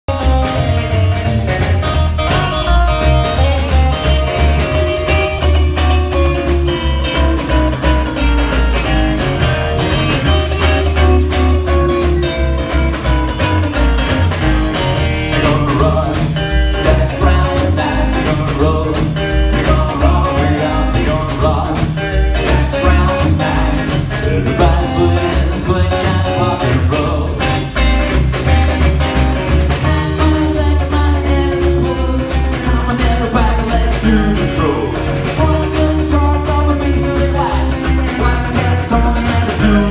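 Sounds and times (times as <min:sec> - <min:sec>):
drums: 0:00.0 - 0:39.9
upright double bass: 0:00.0 - 0:39.9
electric guitar: 0:00.1 - 0:39.9
man singing: 0:15.2 - 0:27.8, 0:29.8 - 0:39.9.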